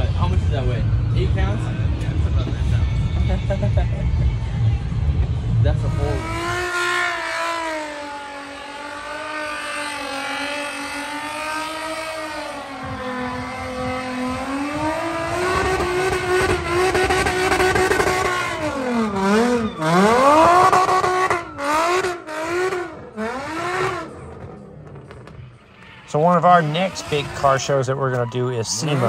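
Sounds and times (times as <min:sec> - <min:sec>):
car engine revving high: 0:05.5 - 0:25.3, 0:26.3 - 0:27.8.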